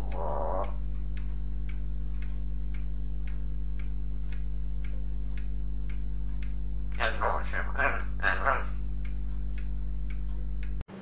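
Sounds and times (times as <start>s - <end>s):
evenly spaced ticks: 0.0s - 10.8s
low electrical hum: 0.0s - 11.0s.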